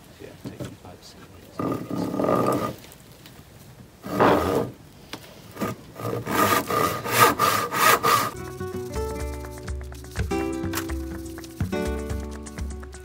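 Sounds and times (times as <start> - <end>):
hand saw cutting wood: 1.6 - 2.8, 4.0 - 4.8, 5.5 - 8.4
background music: 8.4 - 13.0.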